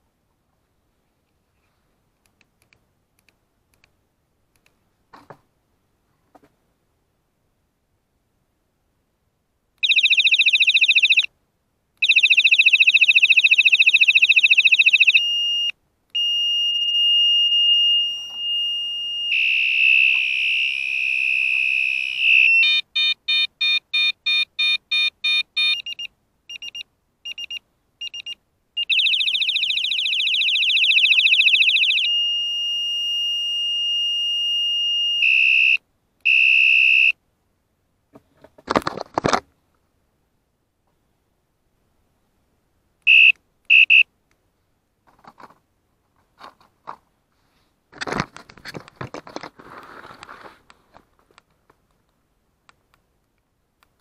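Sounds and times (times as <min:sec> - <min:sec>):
fast beeping: 0:09.8 - 0:11.3, 0:12.0 - 0:15.3, 0:16.2 - 0:32.4, 0:43.1 - 0:44.0
harsh buzzing alarm tones: 0:09.8 - 0:11.3, 0:12.0 - 0:26.0, 0:28.8 - 0:37.1
steady high whistle: 0:16.2 - 0:22.8.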